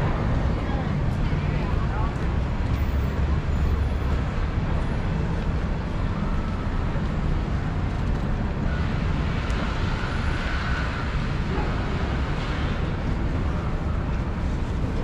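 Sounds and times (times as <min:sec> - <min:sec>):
city street traffic rumble: 0:00.0 - 0:15.0.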